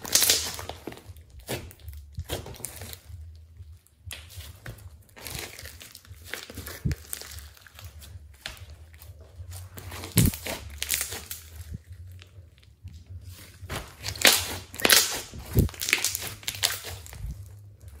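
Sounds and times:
hands squeezing slime: 0:14.0 - 0:17.4.

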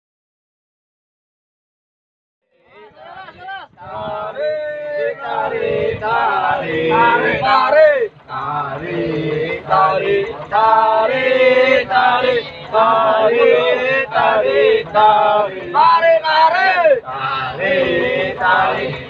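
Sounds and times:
men chanting together: 0:03.8 - 0:19.0.

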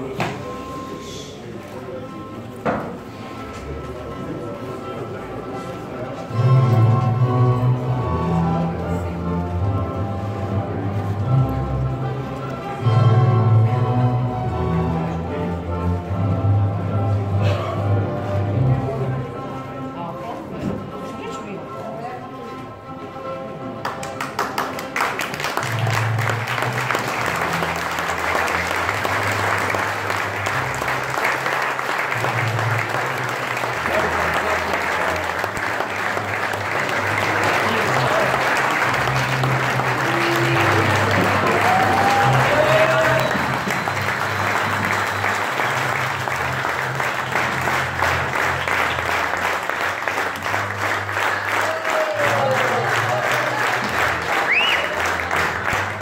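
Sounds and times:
crowd clapping: 0:23.8 - 0:56.0.

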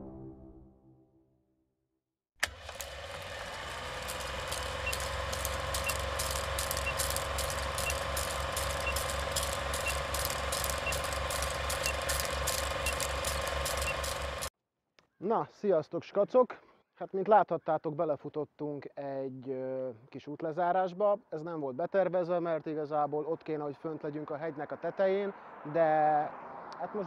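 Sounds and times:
film projector whirring clatter: 0:02.4 - 0:14.5
short high beeps: 0:06.8 - 0:07.2, 0:07.8 - 0:08.1, 0:08.7 - 0:09.2, 0:09.8 - 0:10.1, 0:10.8 - 0:11.1, 0:11.7 - 0:12.2, 0:12.8 - 0:13.1, 0:13.7 - 0:14.2.

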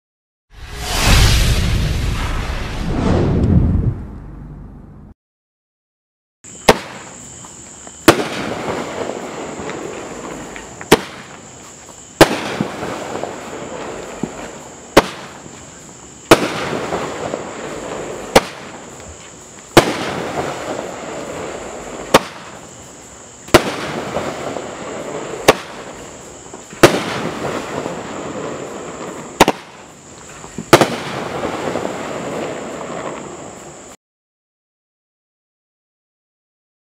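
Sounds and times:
firework aerial break: 0:00.5 - 0:04.8
firework launch bang: 0:00.6 - 0:04.8, 0:10.9 - 0:11.3, 0:18.3 - 0:18.8, 0:22.1 - 0:22.6, 0:23.5 - 0:26.0, 0:29.4 - 0:29.8, 0:30.6 - 0:33.1.

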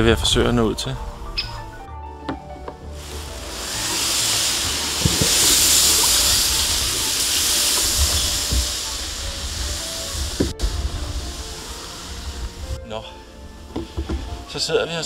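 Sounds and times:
grass rustling against kayak: 0:02.9 - 0:12.8
dull knocks: 0:13.7 - 0:14.4.

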